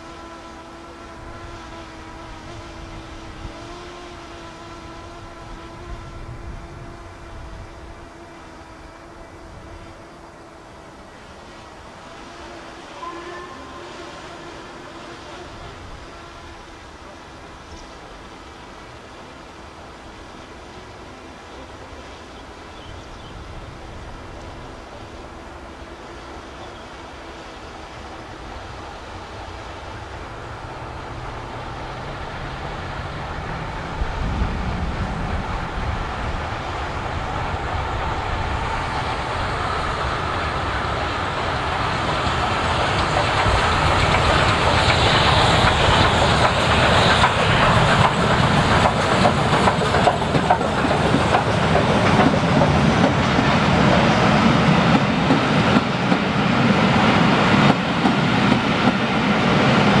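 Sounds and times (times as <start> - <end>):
steam locomotive passing: 0.0 - 60.0
wheels clattering over rail joints: 40.9 - 56.3.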